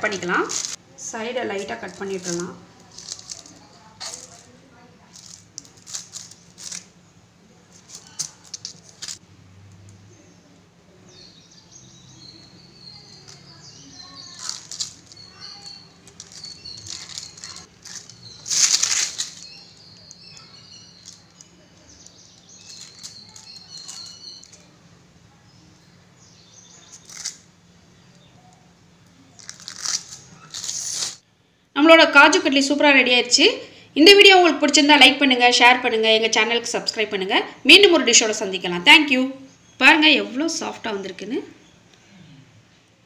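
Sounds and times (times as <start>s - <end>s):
paper sheet crinkling: 0.4s - 0.8s, 1.6s - 7.0s, 7.7s - 9.2s, 14.2s - 21.5s, 22.6s - 24.7s, 29.4s - 31.2s.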